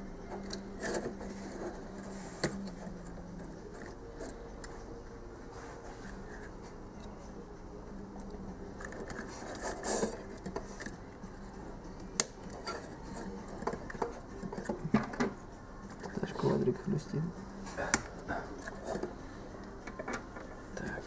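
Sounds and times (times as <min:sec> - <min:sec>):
plastic rubbing and scraping: 0:00.4 - 0:03.0, 0:08.8 - 0:11.0.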